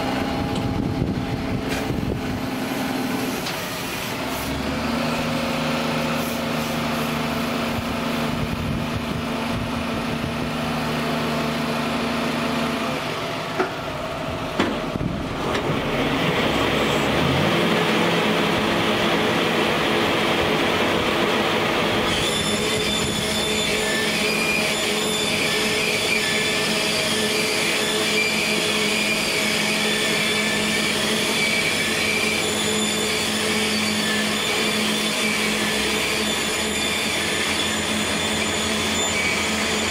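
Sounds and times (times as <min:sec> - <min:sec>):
tractor and wagon machine drone: 0:00.0 - 0:39.9
high metallic whining tones: 0:21.9 - 0:39.9.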